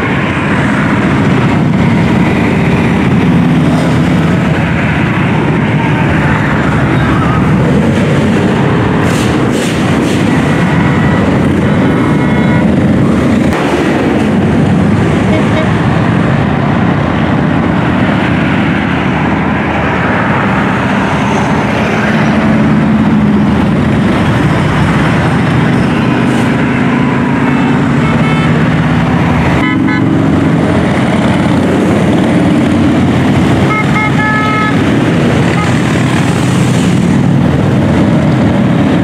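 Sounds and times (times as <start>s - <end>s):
motorcycle engines running: 0.0s - 39.0s
horn toots: 15.2s - 15.8s, 29.6s - 30.2s, 33.6s - 34.8s.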